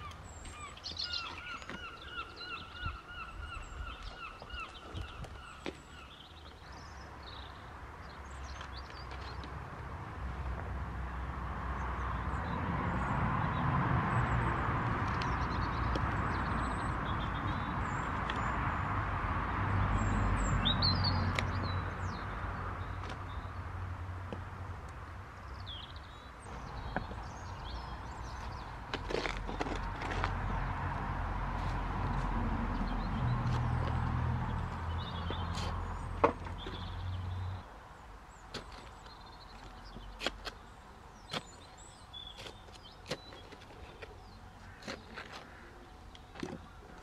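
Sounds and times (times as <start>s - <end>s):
songbirds chirping: 0.0s - 47.0s.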